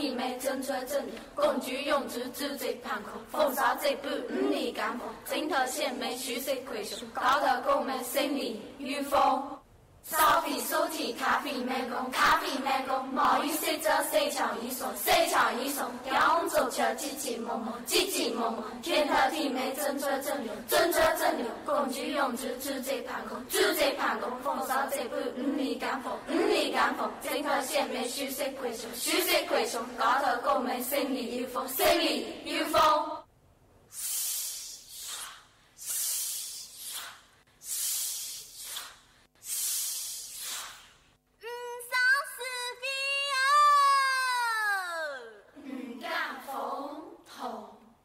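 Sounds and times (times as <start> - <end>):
women chanting verse in unison: 0.0 - 33.3, 43.4 - 48.0
rhythmic swishing hiss: 33.9 - 41.2.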